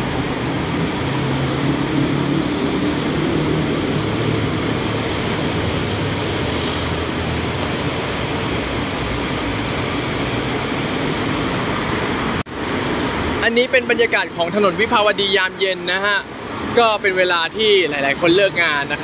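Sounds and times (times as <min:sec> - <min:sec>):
low drone: 0:00.0 - 0:13.4
heavy road traffic: 0:00.0 - 0:19.0.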